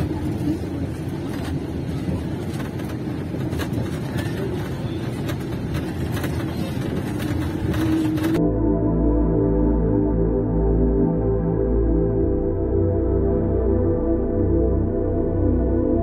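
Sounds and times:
bus engine and road rumble: 0.0 - 8.4.

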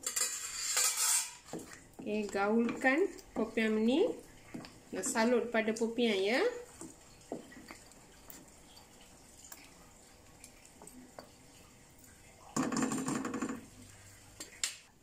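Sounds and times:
spatula scraping in a wok: 0.0 - 3.0.

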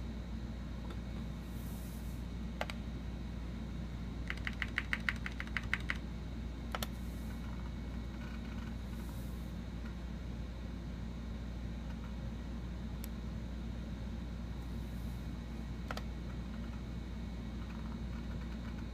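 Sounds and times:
computer humming: 0.0 - 18.9
keyboard key clicks: 4.2 - 6.0.

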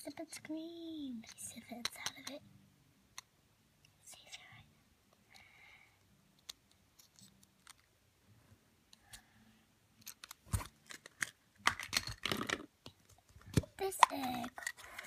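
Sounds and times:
plastic toys clicking and rattling: 6.4 - 7.9, 10.0 - 15.0.

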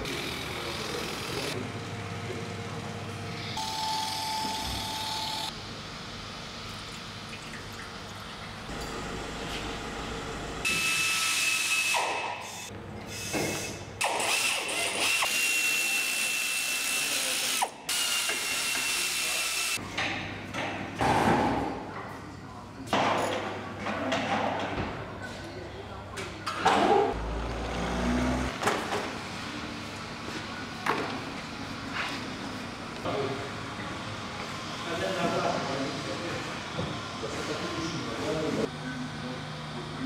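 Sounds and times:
high machine whine: 2.5 - 6.6.

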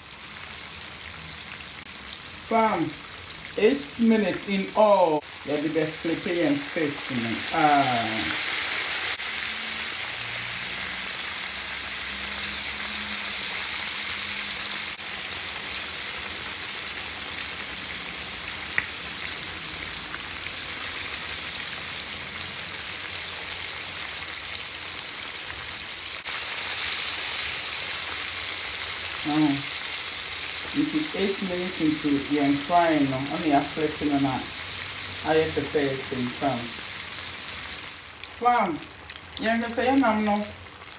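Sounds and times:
fish frying in oil: 0.0 - 40.9.

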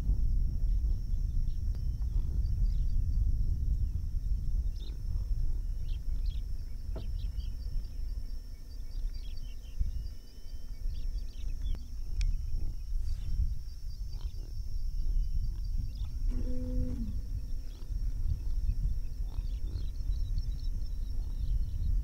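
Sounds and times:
wind rumbling on microphone: 0.0 - 22.0
faint bird chirps: 4.6 - 22.0.

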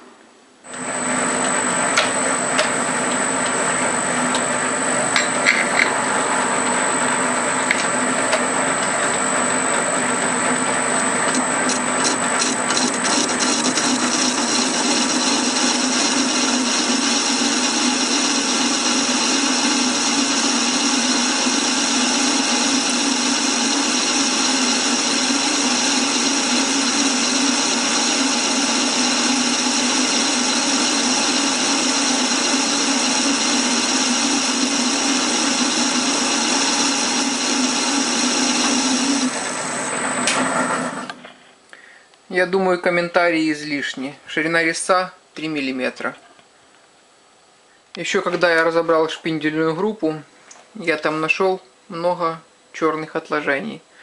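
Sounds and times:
metal lathe cutting workpiece: 0.7 - 41.2.

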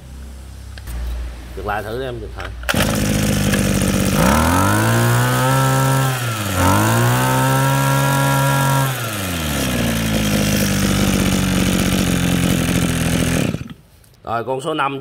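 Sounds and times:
two-stroke engine revving: 2.6 - 13.8.

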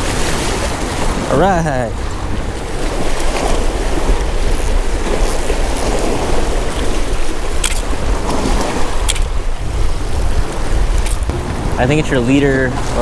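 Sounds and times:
water washing on rocky shore: 0.0 - 13.0
wind buffeting microphone: 0.0 - 13.0
sharp clicks: 7.6 - 7.9, 9.1 - 9.3.

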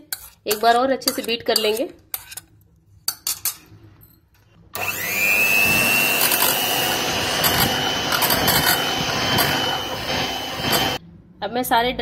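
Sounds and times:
electric hand mixer whining: 4.8 - 11.0.

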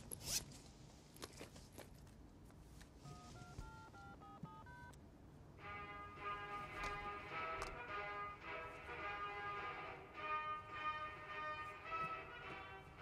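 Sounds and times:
telephone keypad dialing tones: 3.0 - 5.0
music: 5.6 - 13.0.

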